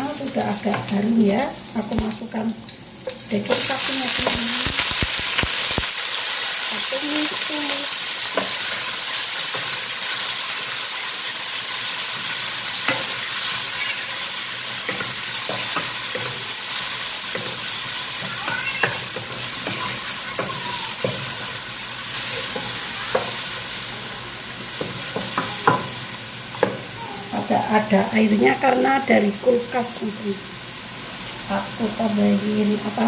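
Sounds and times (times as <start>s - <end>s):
meat sizzling in hot oil: 0.0s - 33.0s
spatula scraping and knocking wok: 8.2s - 27.0s.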